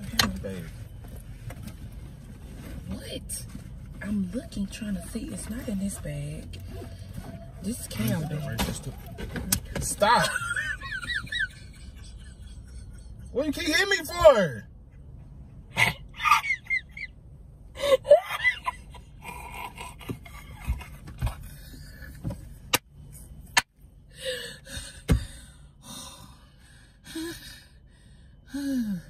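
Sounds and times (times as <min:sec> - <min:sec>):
woman laughing breathlessly: 0:17.7 - 0:22.5.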